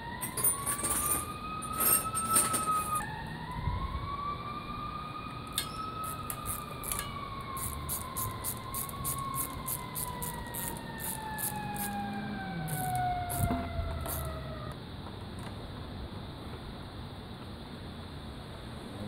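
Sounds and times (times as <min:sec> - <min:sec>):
siren wailing: 0:00.0 - 0:14.8.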